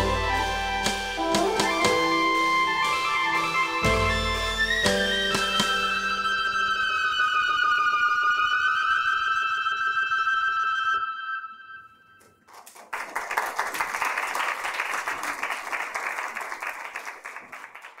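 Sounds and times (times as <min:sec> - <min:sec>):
held synthesizer chord: 0:00.0 - 0:07.1
audience applause: 0:12.5 - 0:18.0.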